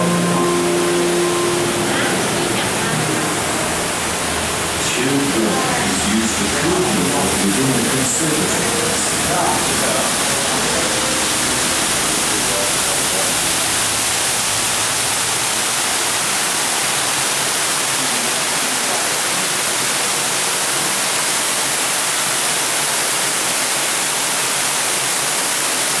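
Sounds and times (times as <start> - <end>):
indoor waterfall rushing: 0.0 - 26.0.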